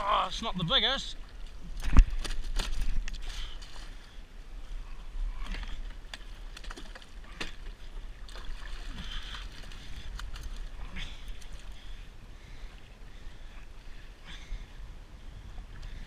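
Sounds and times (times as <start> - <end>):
fishing gear clicks and knocks: 1.2 - 4.1, 5.4 - 11.9
wind rumble on microphone: 7.3 - 16.0.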